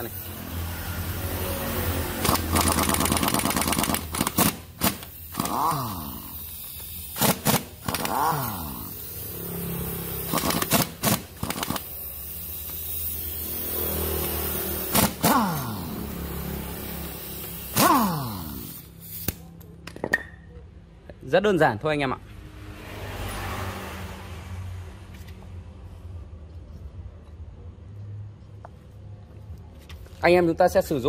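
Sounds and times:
tool motor whining: 0.0s - 18.8s
impact wrench hammering: 2.2s - 8.7s, 10.2s - 12.0s, 14.1s - 15.9s, 17.4s - 20.4s.

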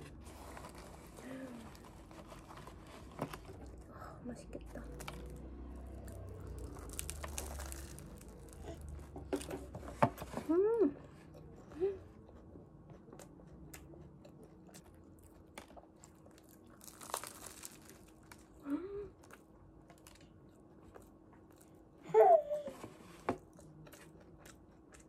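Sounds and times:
faint steady hum: 0.0s - 25.0s
chewing crunchy food: 4.8s - 9.7s, 12.2s - 18.6s, 19.2s - 22.0s, 23.4s - 25.0s.

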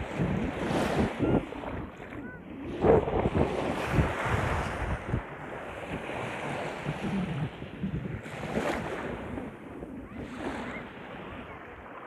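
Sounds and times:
shallow surf washing over sand: 0.0s - 12.0s
wind on microphone: 0.0s - 12.0s.

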